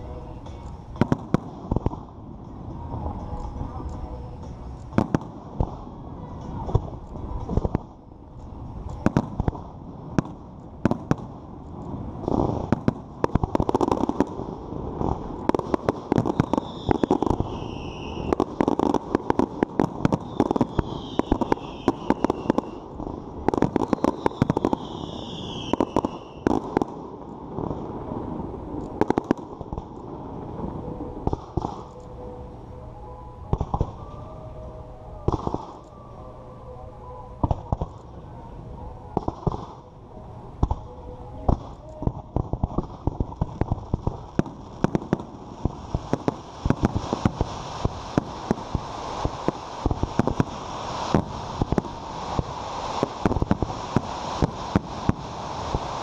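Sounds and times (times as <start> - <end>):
firework shell bursts and crackling: 0.0 - 28.1, 28.7 - 32.4, 37.4 - 38.2, 39.2 - 40.0, 40.6 - 56.0
firework whistling glides: 8.6 - 56.0.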